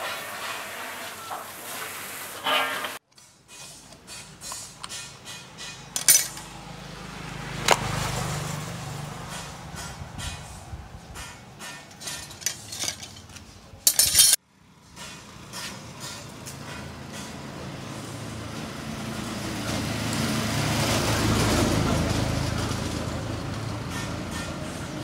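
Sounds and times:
passing vehicle: 5.5 - 11.8, 14.5 - 25.0
light clicks and clinks: 11.8 - 14.4.

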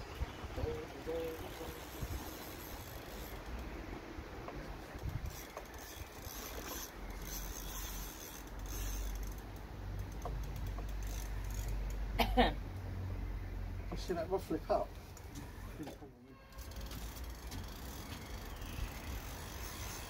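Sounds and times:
fishing reel rasping and clicking: 1.1 - 3.7, 4.9 - 12.0, 16.6 - 20.0.

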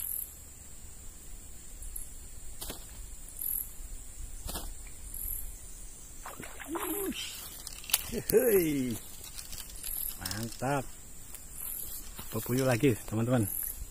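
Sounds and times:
steady high hum: 0.2 - 13.9
fish splashing at water surface: 6.2 - 7.4
man speaking: 6.6 - 7.4, 8.1 - 9.0, 12.3 - 13.5
faint clicks: 6.9 - 13.8.

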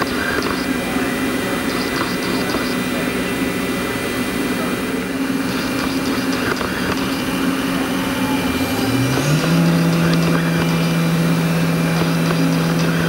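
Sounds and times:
spindle tone rising: 7.2 - 10.2.

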